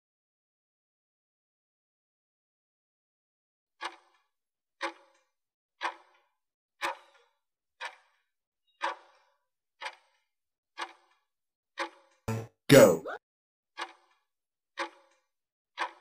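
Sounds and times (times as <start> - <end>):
clock ticks: 3.8 - 4.2, 4.8 - 5.2, 5.8 - 6.2, 6.8 - 7.2, 7.8 - 8.2, 8.8 - 9.2, 9.8 - 10.2, 10.8 - 11.1, 11.8 - 12.8, 13.8 - 14.1, 14.8 - 15.2, 15.8 - 16.0.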